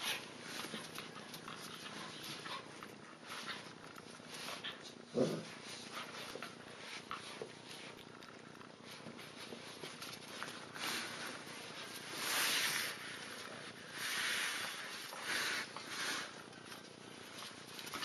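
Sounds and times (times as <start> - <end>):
puppies growling: 0.0 - 8.8.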